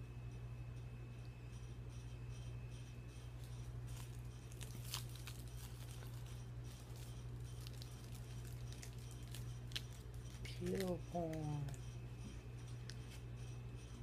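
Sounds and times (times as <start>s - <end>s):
low hum: 0.0s - 14.0s
foil wrapper crinkling: 3.9s - 11.8s.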